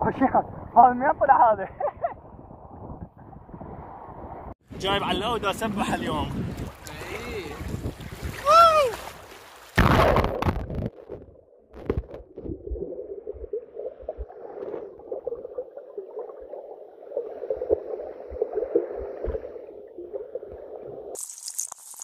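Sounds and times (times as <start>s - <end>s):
muffled underwater water churning: 5.4s - 21.2s.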